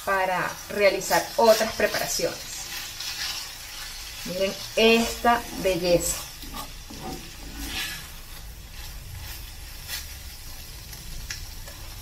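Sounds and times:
faint sizzle: 0.0 - 12.0
wooden spoon scraping thick sauce: 4.9 - 10.2.

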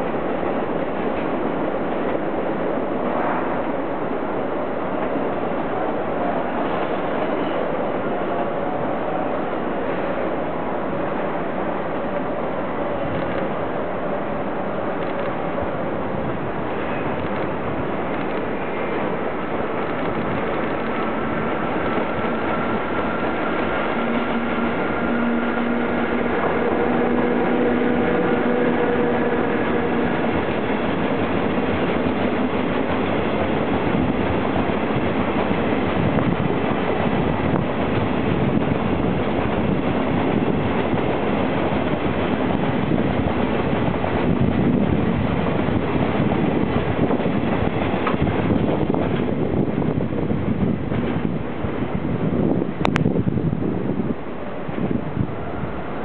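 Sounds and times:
freight train wheel and rail noise: 0.0 - 56.0
locomotive whining tones: 16.4 - 52.2.

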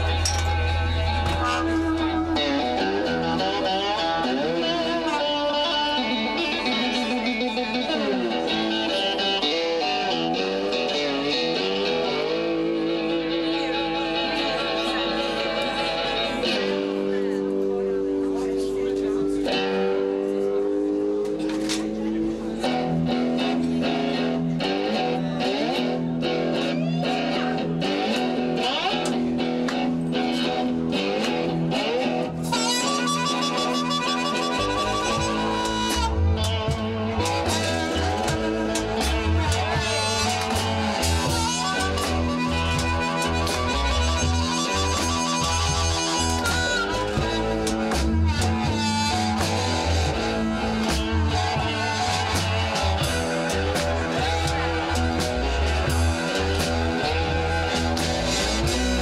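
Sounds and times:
live blues band: 0.0 - 59.0
slide guitar: 0.0 - 59.0
harmonica: 32.5 - 59.0
drum beat: 36.5 - 59.0.

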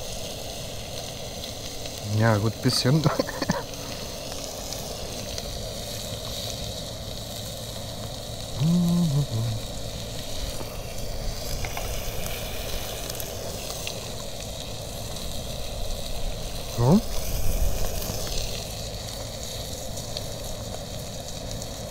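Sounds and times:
meat sizzling on a grill: 0.0 - 21.9
person humming: 8.6 - 9.7.

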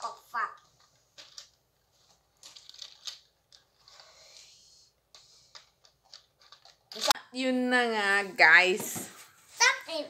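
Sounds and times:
plastic track pieces clicking: 0.9 - 1.6, 2.4 - 4.0.

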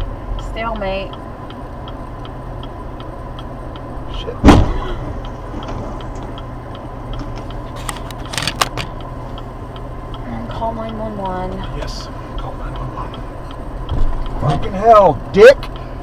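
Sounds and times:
faint regular ticking: 0.0 - 16.0
low cabin hum: 0.0 - 16.0
sharp clicks and knocks: 0.3 - 11.8, 12.4 - 14.7
car crash: 4.4 - 6.0.

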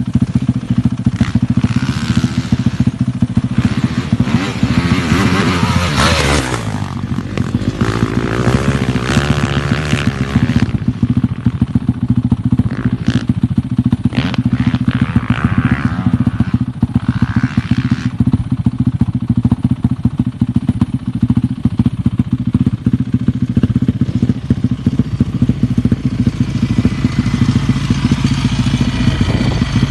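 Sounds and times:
dirt bike engine revving: 0.0 - 20.4, 21.1 - 29.9.

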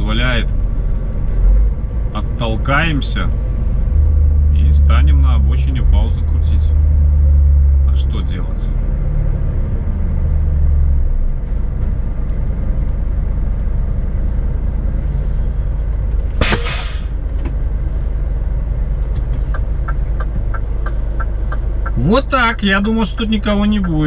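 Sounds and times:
diesel truck engine rumble: 0.0 - 24.0
air brake hiss: 16.4 - 17.2
light regular ticks: 19.2 - 22.0.

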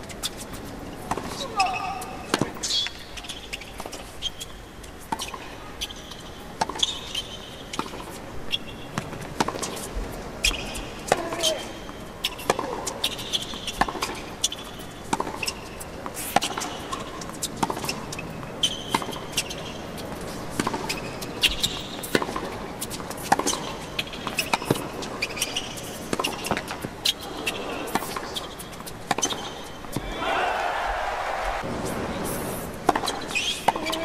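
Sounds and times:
shoes squeaking on court: 0.0 - 31.7, 32.8 - 34.0
tennis ball struck and bouncing: 15.1 - 15.5.

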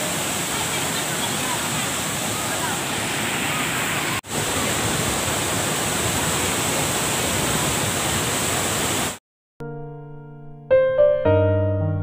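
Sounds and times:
waterfall rushing: 0.0 - 9.2.

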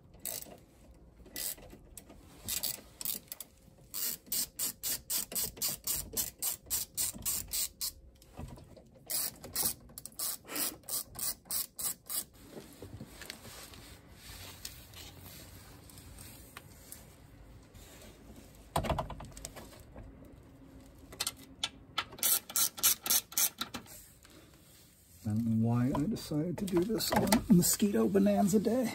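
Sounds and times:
socket ratchet clicking: 2.5 - 8.0, 9.1 - 12.3, 22.0 - 23.9.

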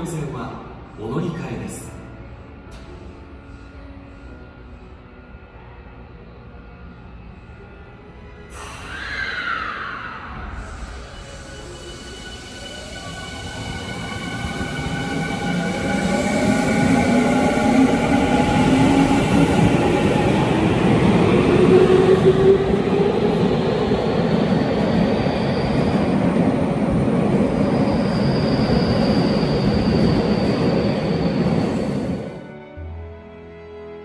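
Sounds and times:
faint high-pitched squeal: 6.1 - 19.5.

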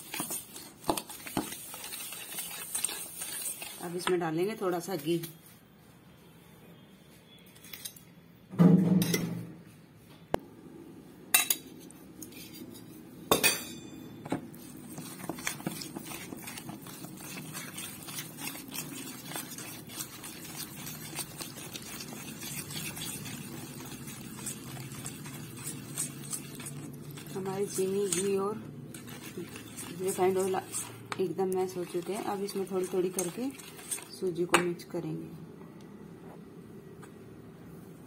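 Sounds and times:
whisk beating in steel bowl: 0.0 - 4.8, 14.3 - 34.8.

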